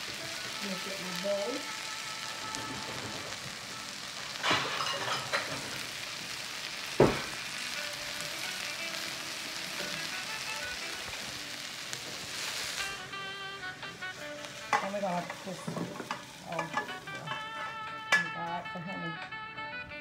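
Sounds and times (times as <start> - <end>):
vegetables sizzling in oil: 0.0 - 19.3
sharp knock: 7.0 - 7.3.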